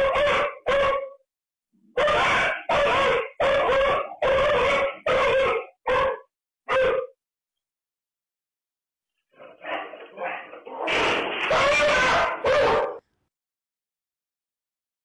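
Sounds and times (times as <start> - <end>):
animal calling loudly: 2.0 - 7.1, 11.5 - 13.0.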